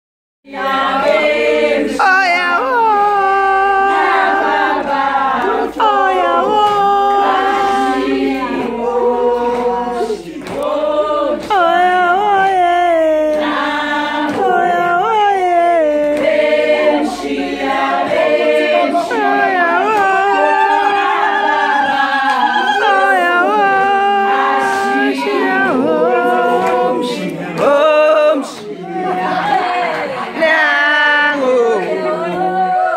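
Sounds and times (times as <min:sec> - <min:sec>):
group singing without instruments: 0:00.5 - 0:32.9.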